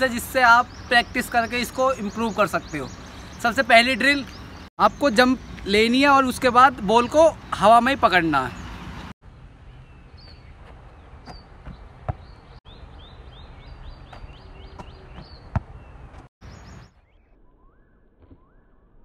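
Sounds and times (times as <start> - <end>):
small birds chirping: 0.0 - 17.3.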